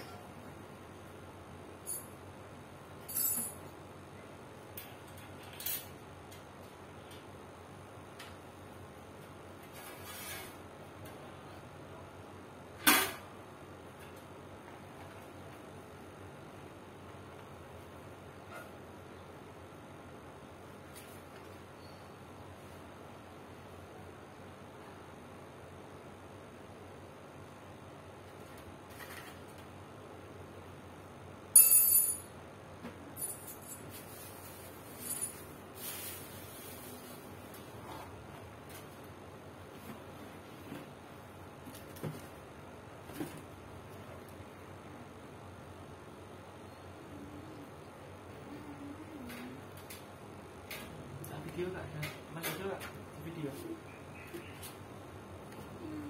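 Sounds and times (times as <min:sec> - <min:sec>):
metal parts clinking: 0:03.1 - 0:03.6.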